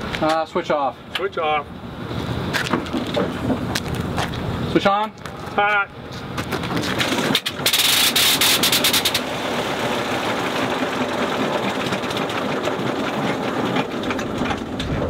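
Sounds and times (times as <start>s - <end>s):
rotary engine running rough: 6.6s - 15.0s.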